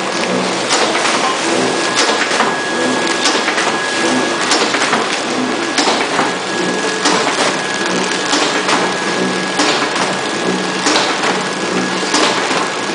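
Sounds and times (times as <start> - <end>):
packaging machine clatter: 0.0 - 12.9
sharp machine clacks: 0.0 - 12.9
faint high machine whine: 1.6 - 4.7, 5.3 - 9.7.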